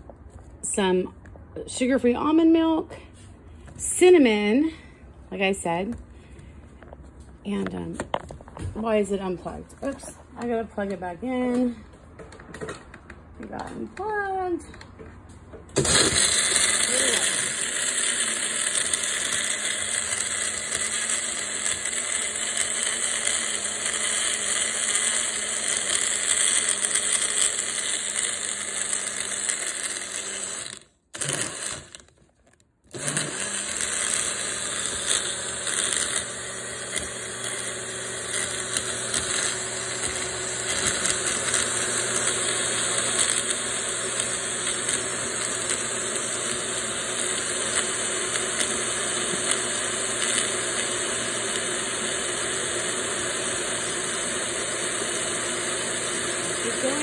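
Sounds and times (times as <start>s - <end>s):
blender motor running: 15.8s - 32.1s, 32.9s - 57.0s.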